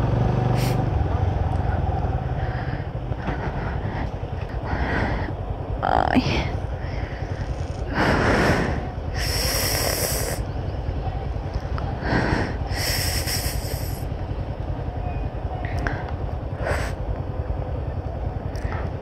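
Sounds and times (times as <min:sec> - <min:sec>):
motorcycle engine rumbling: 0:00.0 - 0:19.0
hissing noise bursts: 0:09.2 - 0:10.4, 0:12.7 - 0:14.1.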